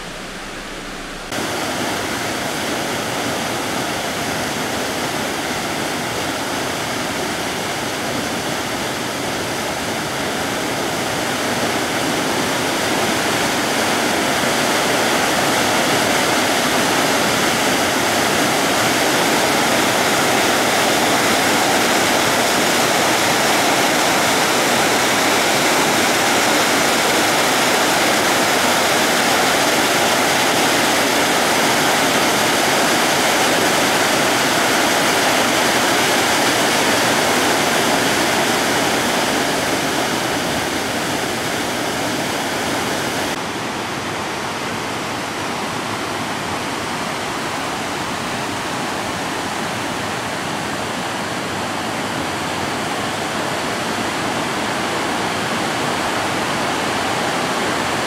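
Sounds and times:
waterfall rushing into pool: 0:00.0 - 0:58.0.

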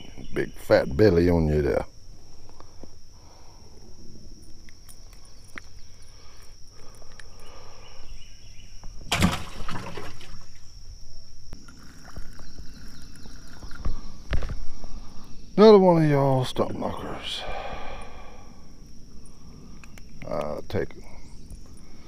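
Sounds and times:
high insect drone: 0:00.0 - 0:22.0
handling noises and small clicks: 0:04.4 - 0:07.4, 0:19.8 - 0:20.6.

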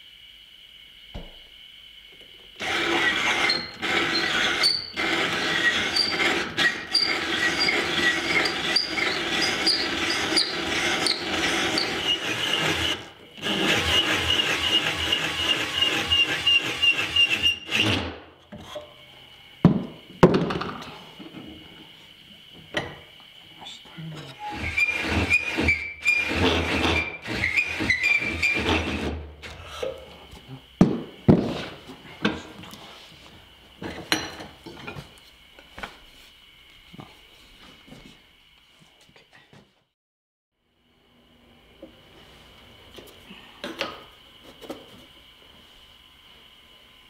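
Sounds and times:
cordless drill shaving wood: 0:02.6 - 0:18.2, 0:24.4 - 0:29.7.

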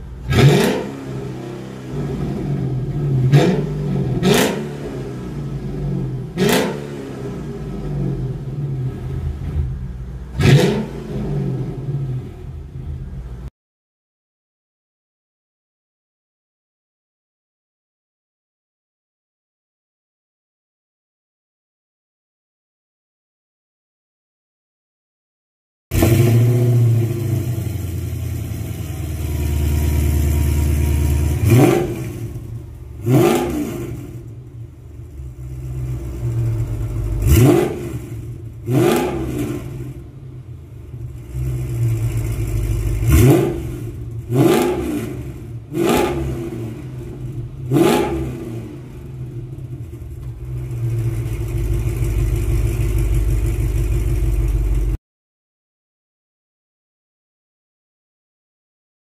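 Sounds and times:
car engine idling and revving: 0:00.0 - 0:13.5, 0:25.9 - 0:55.0.

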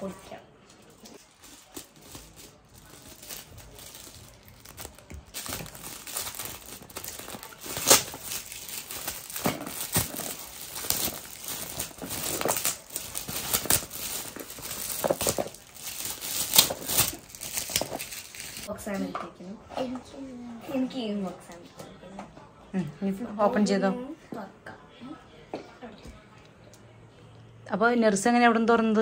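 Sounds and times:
wrapping paper tearing and crinkling: 0:01.2 - 0:18.7.

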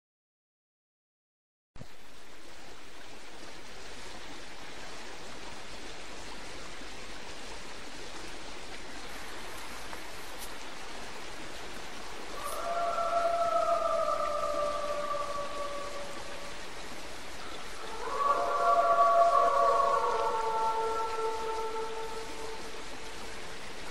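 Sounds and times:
night ambience hiss: 0:01.8 - 0:23.9
wolf or coyote howling: 0:12.3 - 0:16.7, 0:17.4 - 0:23.0.

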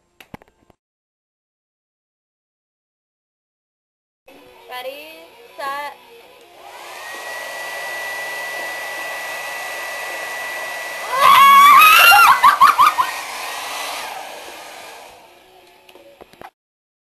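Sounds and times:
hair dryer running: 0:06.4 - 0:15.9
person screaming: 0:11.0 - 0:12.7.

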